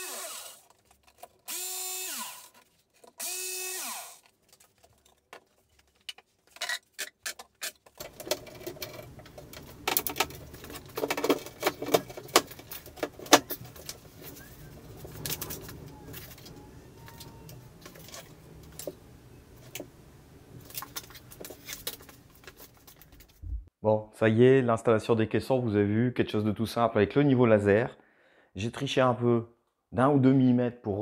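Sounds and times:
handling knocks and clicks: 0:04.2 - 0:20.0.

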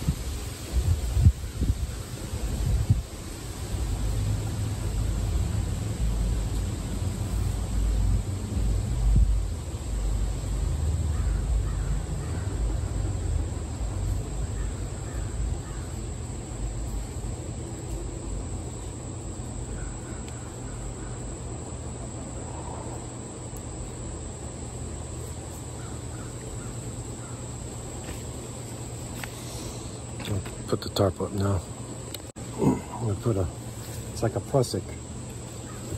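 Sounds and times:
wind rumbling on microphone: 0:00.0 - 0:06.5, 0:07.1 - 0:10.2
high-pitched insect drone: 0:00.0 - 0:35.9
faint bird calls: 0:11.1 - 0:13.1, 0:14.2 - 0:16.2, 0:19.6 - 0:23.2, 0:25.7 - 0:27.8, 0:35.5 - 0:35.9.

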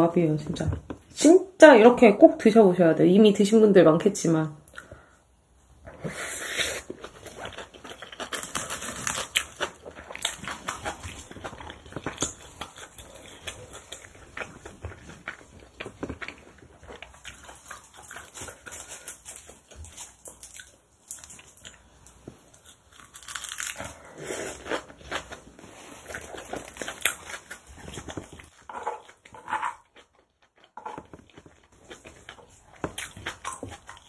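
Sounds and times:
chewing and crunching: 0:06.8 - 0:34.0.

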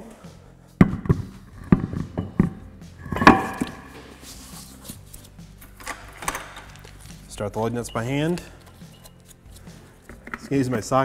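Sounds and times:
wheel thudding: 0:00.8 - 0:04.2.

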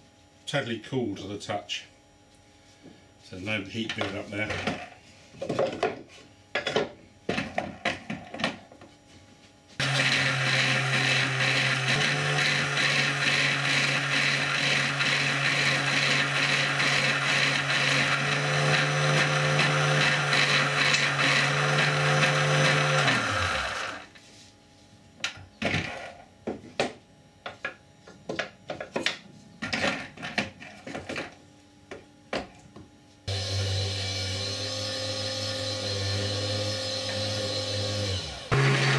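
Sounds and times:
electric motor running: 0:09.8 - 0:24.1, 0:33.3 - 0:38.9.

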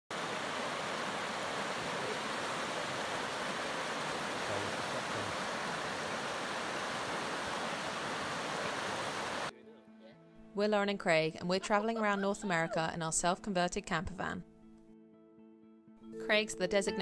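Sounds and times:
creek rushing over stones: 0:00.1 - 0:09.5.

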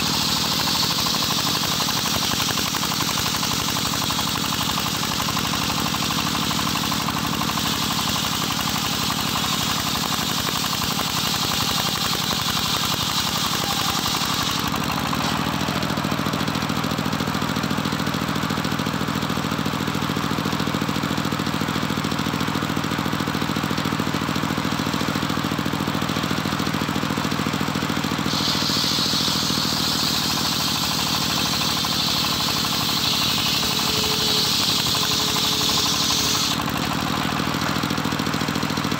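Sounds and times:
engine humming: 0:00.0 - 0:10.2, 0:25.3 - 0:38.9
saw blade hissing through wood: 0:00.0 - 0:16.2, 0:28.0 - 0:37.3.

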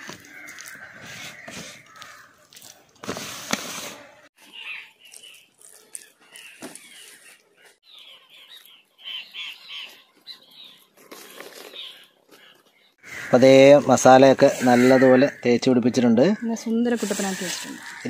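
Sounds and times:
birds chirping: 0:04.0 - 0:18.0.

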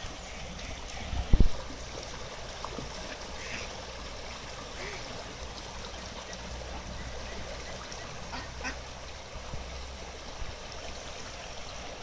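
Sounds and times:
water spilling over a weir: 0:00.0 - 0:12.0
ducks quacking: 0:06.7 - 0:08.8.

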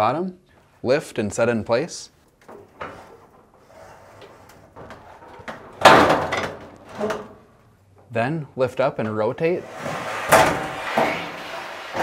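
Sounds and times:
loud metal clunk: 0:05.8 - 0:07.3, 0:10.2 - 0:11.4.

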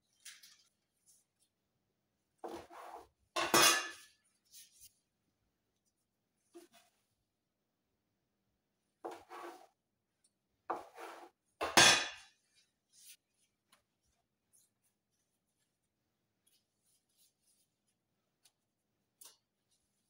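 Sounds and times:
soft rustles of gloved hands: 0:12.5 - 0:20.0.

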